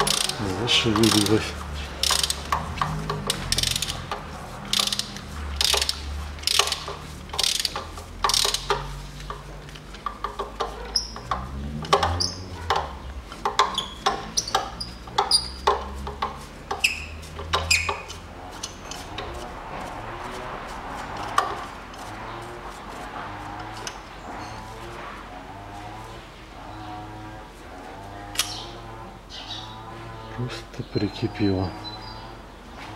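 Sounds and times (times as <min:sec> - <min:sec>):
socket wrench clicking: 0:00.0 - 0:01.4, 0:02.0 - 0:19.0.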